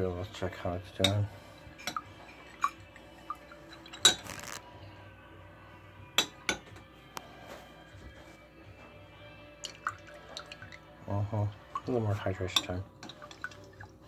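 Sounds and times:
metal spoon clinking against glass: 1.8 - 4.2.

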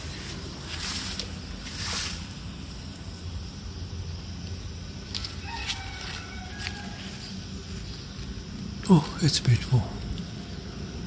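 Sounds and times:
outdoor background hum: 0.0 - 11.0
faint rooster crowing: 5.1 - 7.8.

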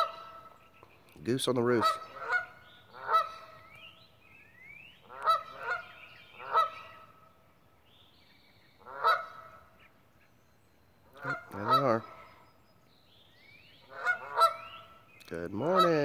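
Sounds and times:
geese honking: 0.0 - 0.8, 1.5 - 3.8, 5.0 - 7.3, 8.8 - 10.0, 11.1 - 12.4, 13.8 - 16.0.

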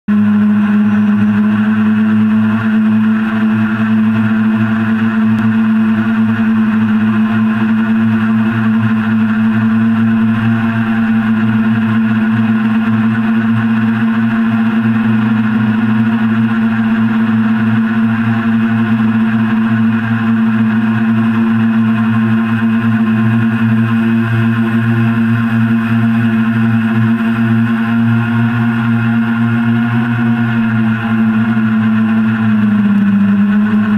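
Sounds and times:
drone propellers humming: 0.1 - 33.9.

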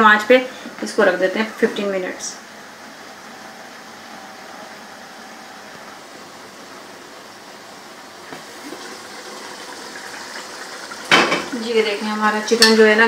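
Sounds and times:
curry simmering hiss: 6.1 - 13.0.

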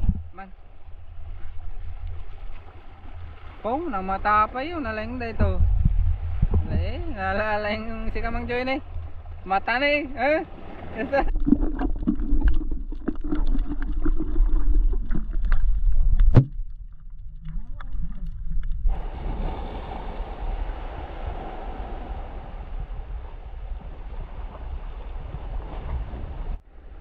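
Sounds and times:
muffled underwater rumble: 0.0 - 27.0
waves washing over rocks: 17.4 - 26.6.

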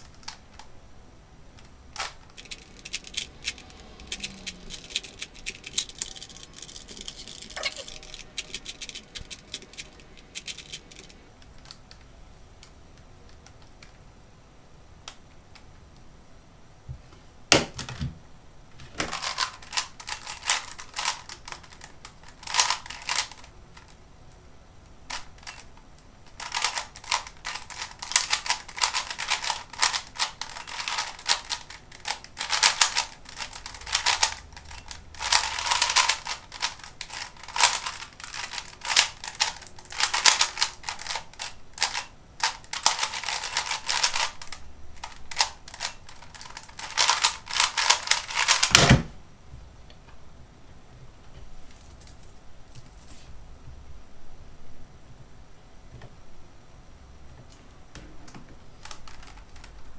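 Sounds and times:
plastic puzzle cube clicking: 26.4 - 48.8.

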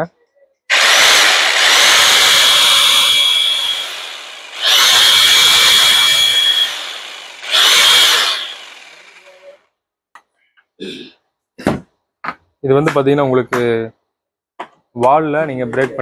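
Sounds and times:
demolition hammer motor whine: 0.7 - 9.6
motor winding down: 0.7 - 9.6.

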